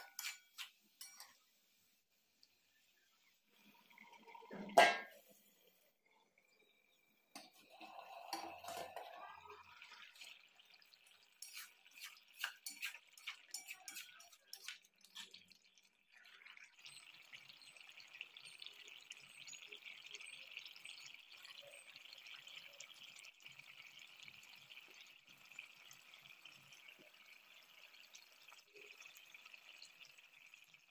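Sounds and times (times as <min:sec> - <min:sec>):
curry bubbling: 0:00.0 - 0:30.9
metal lid clinking: 0:04.5 - 0:05.2.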